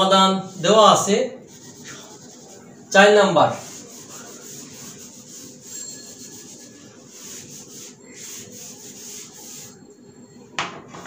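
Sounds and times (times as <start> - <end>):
eraser rubbing on whiteboard: 1.5 - 2.9, 3.5 - 9.8.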